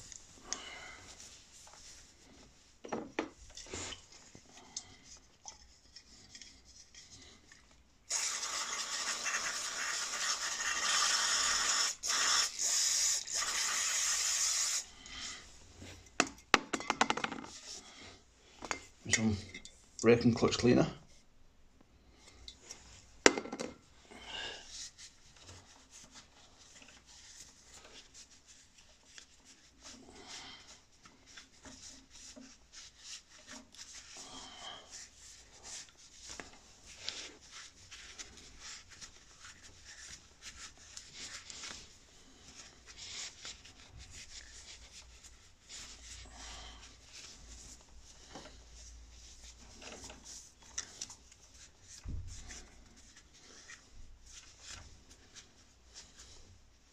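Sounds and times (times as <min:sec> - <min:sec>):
cloth scrubbing and rustling: 0:24.6 - 0:56.9.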